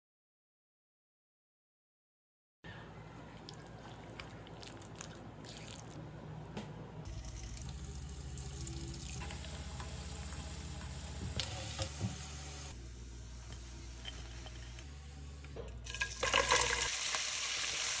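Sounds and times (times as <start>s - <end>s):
chicken sizzling in hot oil: 7.3s - 12.7s, 15.9s - 18.0s.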